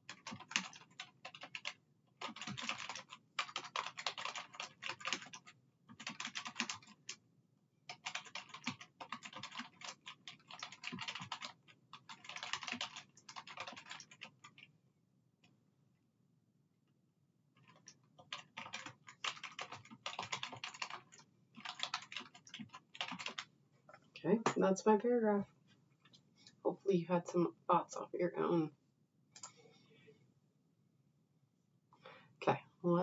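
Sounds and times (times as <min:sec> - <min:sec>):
typing on computer keyboard: 0:00.0 - 0:07.2, 0:07.9 - 0:14.7, 0:17.6 - 0:23.5.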